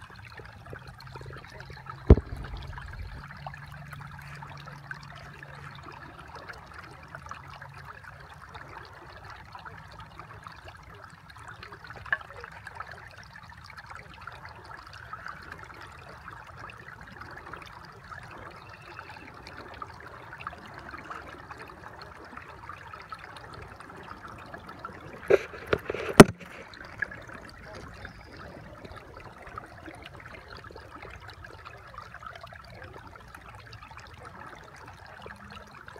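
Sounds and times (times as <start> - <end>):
water trickling: 0.0 - 35.9
sharp knocks: 2.1 - 3.2.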